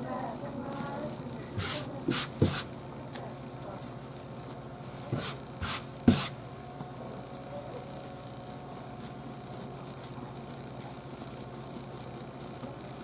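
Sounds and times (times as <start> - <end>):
dough thudding: 1.5 - 2.7
hand swishing on plastic board: 1.6 - 2.7, 5.1 - 6.4.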